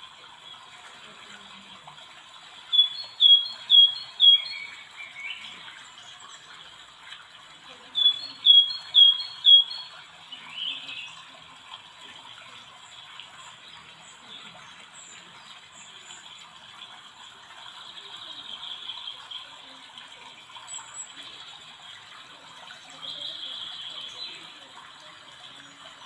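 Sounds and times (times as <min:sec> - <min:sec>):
bird chirping: 0:02.7 - 0:05.6, 0:08.0 - 0:11.2.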